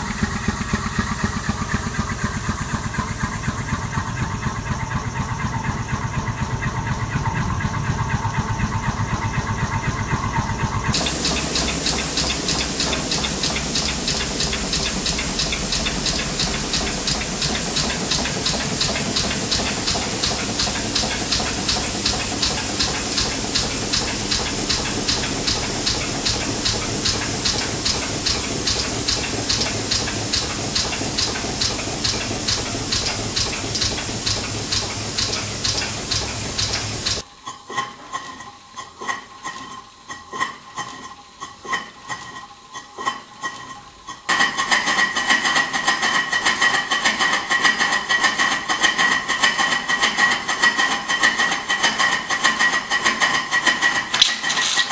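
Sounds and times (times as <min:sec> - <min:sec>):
steam hiss: 0:00.0 - 0:06.4, 0:10.9 - 0:37.2
steam engine running: 0:00.0 - 0:37.2
valve gear ticking: 0:00.0 - 0:37.2
mechanical clatter with ringing tone: 0:00.0 - 0:54.9.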